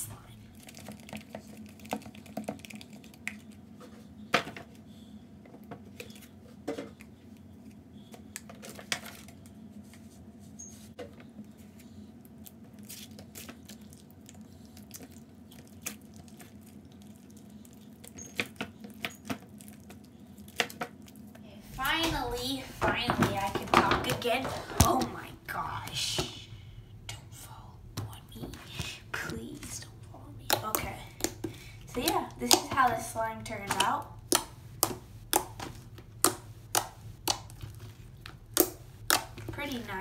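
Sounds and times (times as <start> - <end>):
low steady hum: 0.0 - 40.0
slime squelching and clicking: 27.9 - 40.0
slime snapping: 30.5 - 32.9, 33.6 - 39.5.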